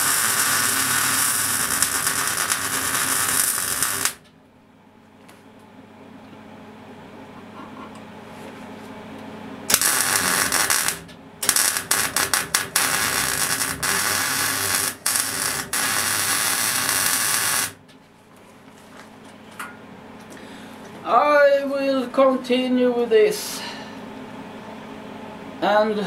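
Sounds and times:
welding arc crackling: 0.0 - 4.3, 9.7 - 17.8.

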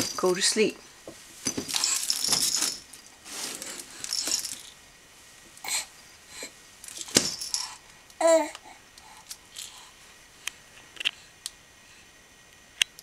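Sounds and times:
baby toys rustling and jangling: 0.0 - 4.8, 5.6 - 8.4, 9.1 - 9.9.

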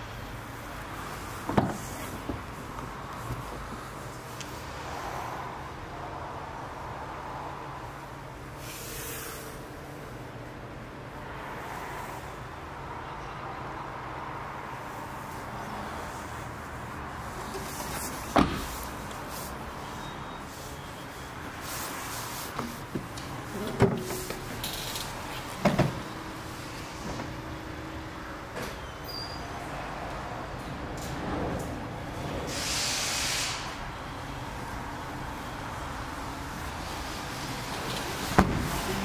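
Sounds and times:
car boot lid knocks: 1.5 - 2.4
brief hiss: 32.5 - 33.8.

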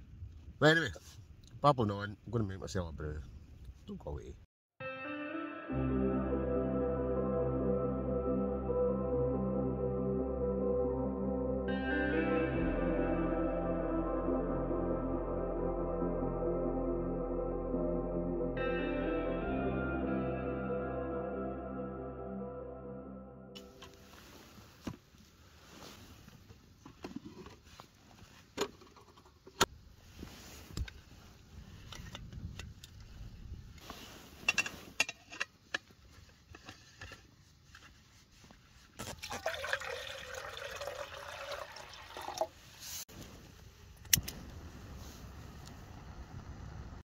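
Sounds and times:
water pouring: 39.0 - 42.8.

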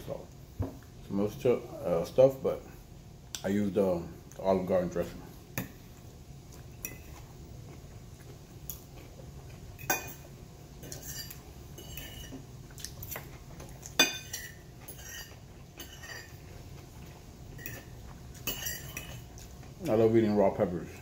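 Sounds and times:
fork clinking on a plate: 10.8 - 12.4, 13.8 - 16.4, 17.6 - 19.2.

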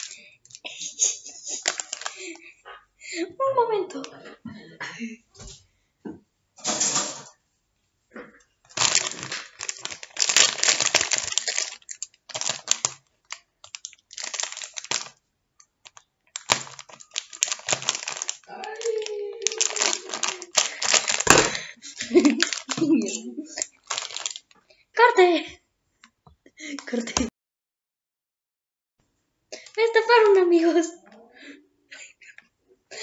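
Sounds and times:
foil chip bag crinkling: 0.0 - 2.4, 8.7 - 15.2, 15.8 - 24.6.

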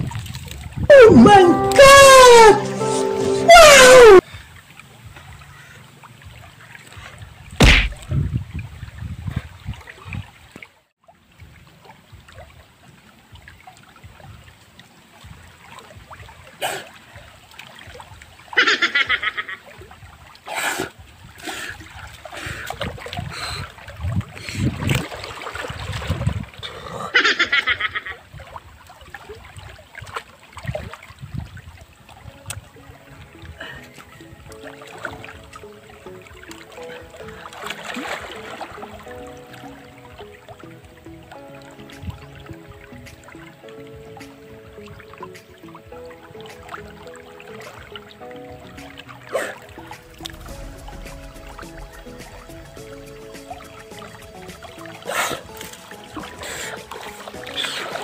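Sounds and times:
water splashing: 0.0 - 58.0
short high-pitched sounds: 0.9 - 4.2.

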